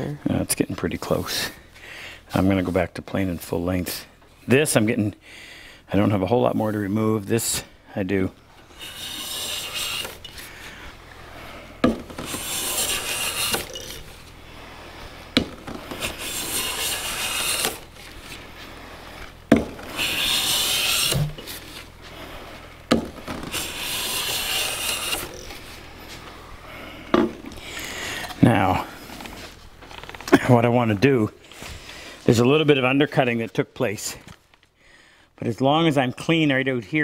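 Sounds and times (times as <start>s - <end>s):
hand plane shaving wood: 8.6s - 26.3s
plane knocking on wood: 15.4s - 17.8s, 19.5s - 21.4s.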